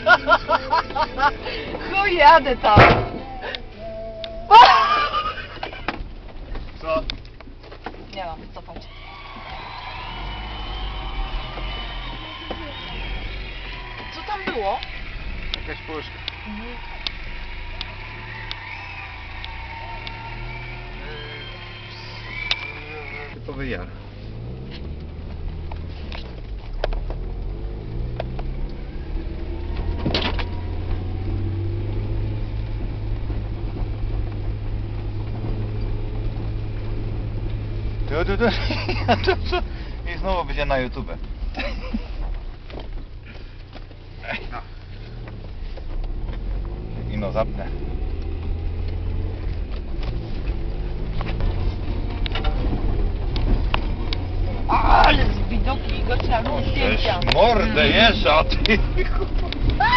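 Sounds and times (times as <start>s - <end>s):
car engine running: 0.0s - 59.9s
vehicle knocks and rattles: 0.7s - 3.3s, 5.4s - 8.9s, 48.0s - 57.6s.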